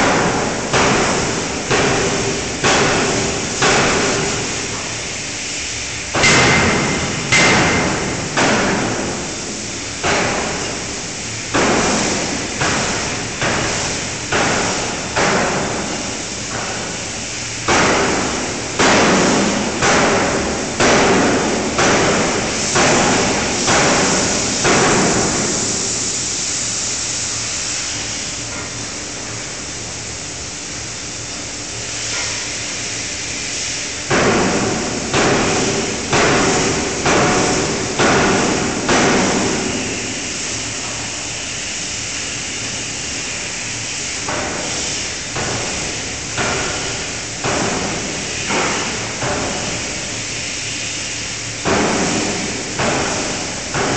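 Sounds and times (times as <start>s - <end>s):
forging hammer striking hot metal: 0.0s - 4.5s, 6.1s - 9.3s.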